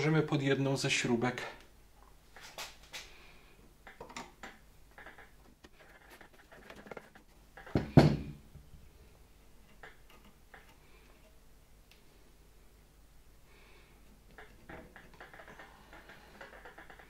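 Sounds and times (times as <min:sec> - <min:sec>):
loud knock: 0:07.7 - 0:08.4.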